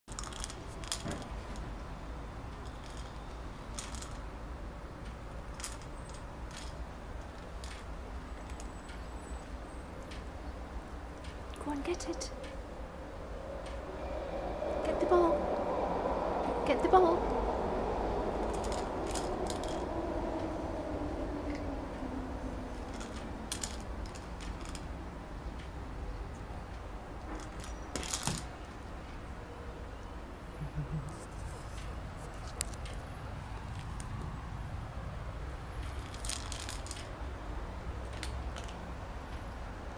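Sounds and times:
low steady hum: 0:00.2 - 0:39.9.

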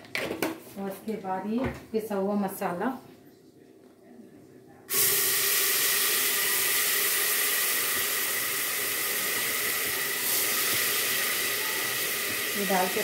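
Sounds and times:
paste sizzling in hot oil: 0:04.9 - 0:13.0.

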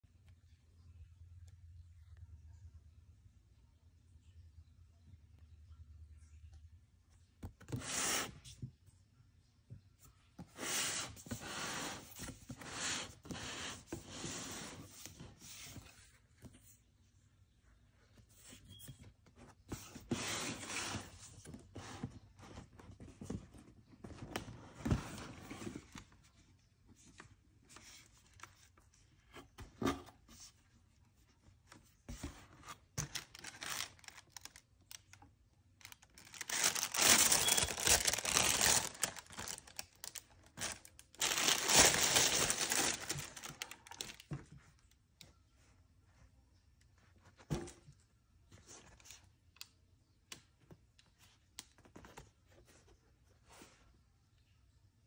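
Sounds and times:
tissue paper rustling and crinkling: 0:33.1 - 0:34.5, 0:35.8 - 0:44.3.

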